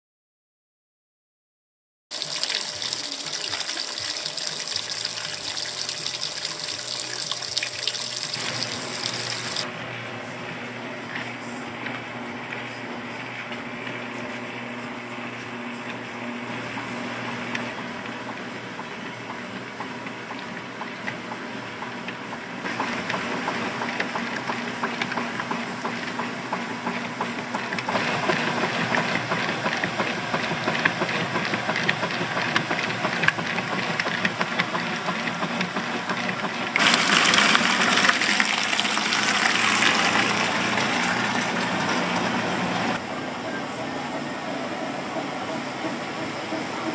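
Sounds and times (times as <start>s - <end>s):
washing machine agitating: 2.1s - 9.6s, 22.7s - 43.0s
water sloshing: 2.2s - 9.6s, 36.8s - 43.0s.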